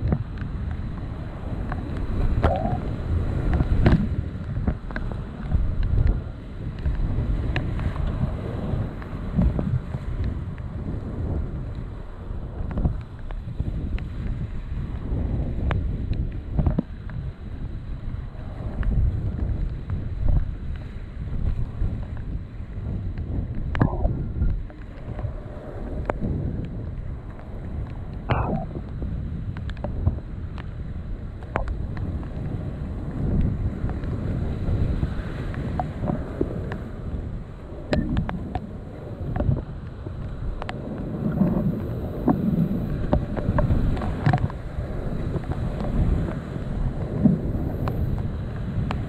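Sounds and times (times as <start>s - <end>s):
paddle and wave splashes: 0.0s - 49.0s
wind buffeting microphone: 0.0s - 49.0s
rushing white water: 28.3s - 28.8s.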